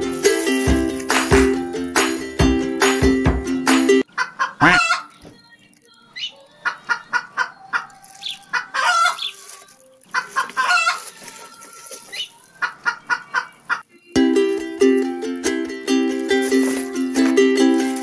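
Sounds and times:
chickens clucking: 0:04.0 - 0:14.0.

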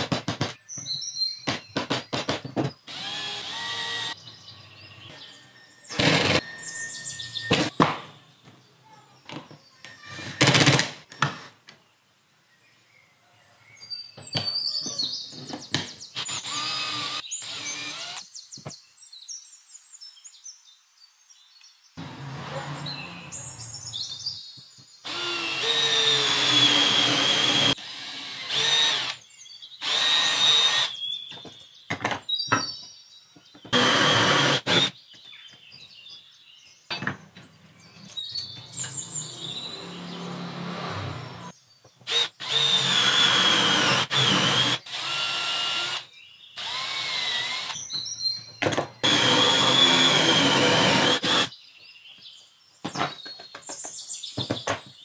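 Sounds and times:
cordless drill boring wood: 0:02.9 - 0:04.2, 0:05.9 - 0:06.8, 0:16.2 - 0:18.2, 0:25.0 - 0:29.2, 0:29.8 - 0:31.0, 0:33.7 - 0:34.9, 0:39.4 - 0:41.5, 0:42.1 - 0:47.8, 0:49.0 - 0:51.5.

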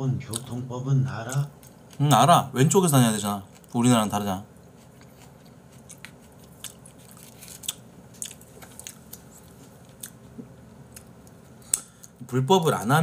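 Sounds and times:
person chewing food: 0:01.3 - 0:02.1, 0:03.4 - 0:04.0, 0:04.6 - 0:12.2.

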